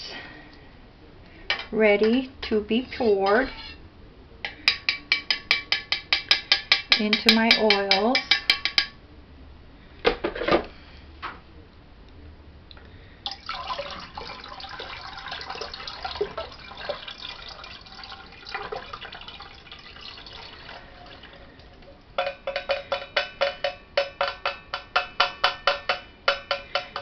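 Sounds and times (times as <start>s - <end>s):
liquid trickling into bucket: 13.3s - 21.8s
ringing taps: 22.2s - 27.0s.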